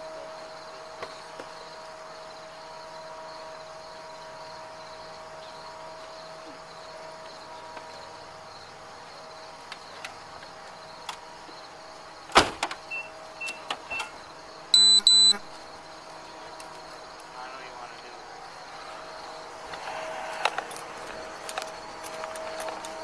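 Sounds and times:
faint hum: 14.6 - 23.0
short electronic beeps: 14.8 - 15.4.

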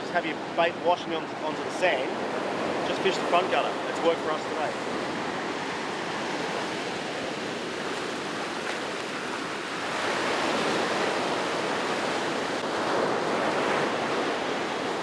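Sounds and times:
ocean surf breaking: 0.0 - 15.0.

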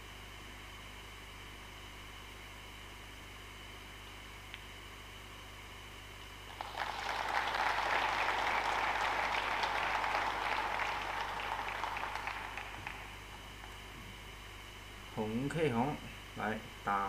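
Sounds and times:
audience applauding: 6.5 - 13.8.

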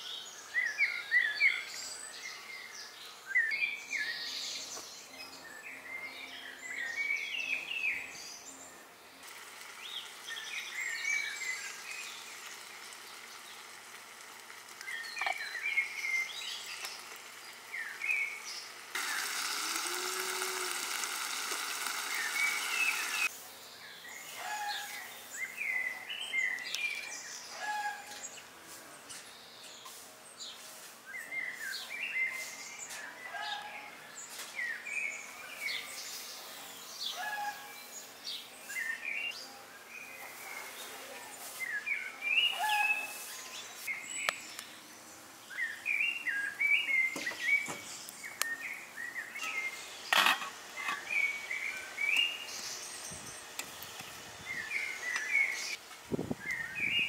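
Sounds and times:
songbirds chirping: 0.0 - 57.0.

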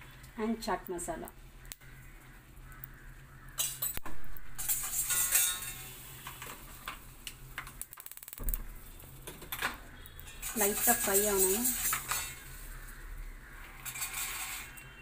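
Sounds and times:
butter sizzling in pan: 0.0 - 9.2, 10.4 - 14.6.

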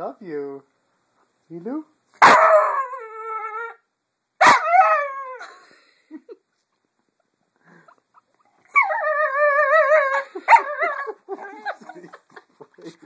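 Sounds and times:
dog howling: 8.7 - 11.7.

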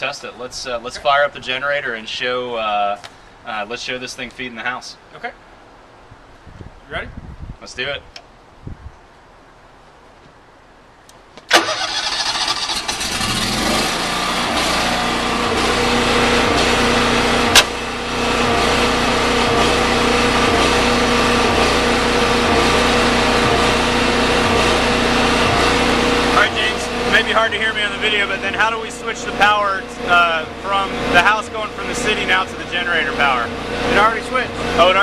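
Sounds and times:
generator engine cranking and running: 11.5 - 35.0
transfer switch clunk: 17.5 - 17.8.

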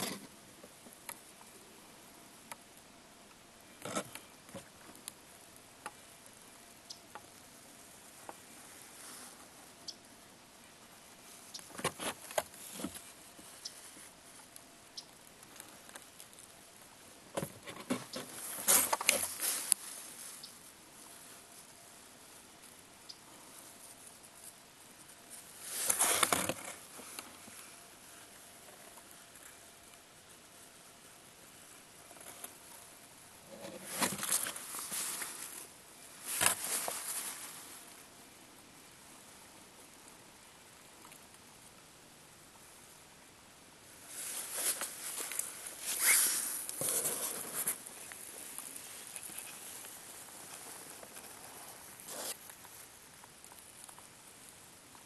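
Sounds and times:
handling clicks and rustles: 11.3 - 20.2, 23.6 - 30.1, 31.8 - 37.6, 44.1 - 55.0
handling rustling: 33.4 - 37.7, 44.1 - 54.1.

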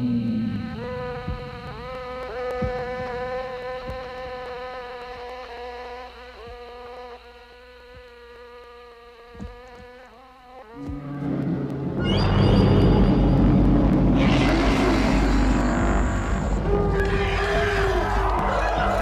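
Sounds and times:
flying insect buzzing: 0.0 - 19.0
soft low thumps: 0.7 - 5.3.

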